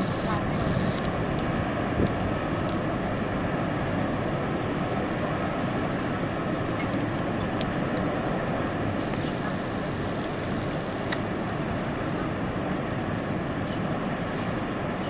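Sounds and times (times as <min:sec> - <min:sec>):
waterfall rushing: 0:02.4 - 0:12.1.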